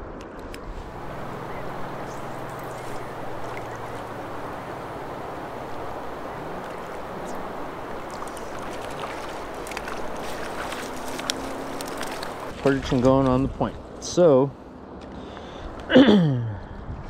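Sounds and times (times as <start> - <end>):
river water rushing: 0.8 - 12.6.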